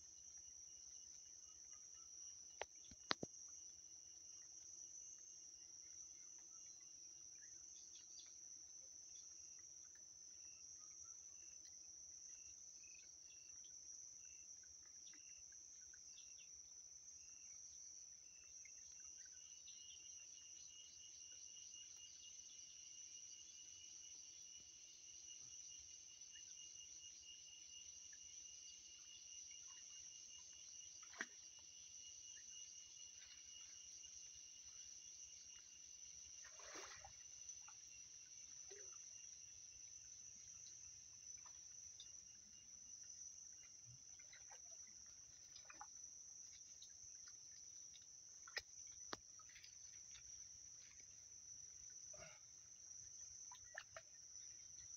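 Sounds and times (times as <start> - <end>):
insects chorus: 0.0 - 54.9.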